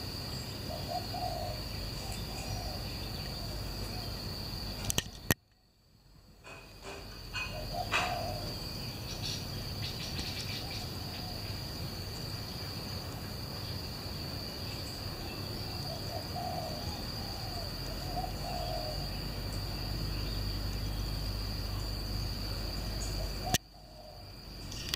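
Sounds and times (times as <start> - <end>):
high insect trill: 0.0 - 24.9
dove cooing: 0.7 - 4.2, 7.3 - 8.7, 15.7 - 19.2, 23.0 - 24.3.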